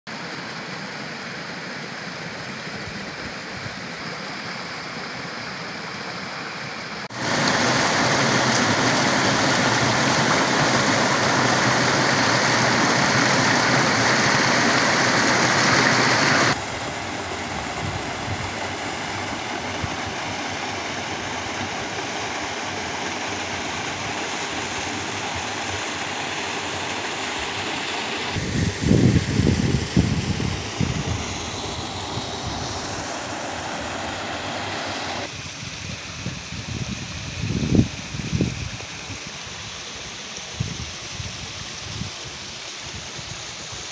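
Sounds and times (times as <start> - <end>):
stream splashing over rocks: 7.1 - 35.4.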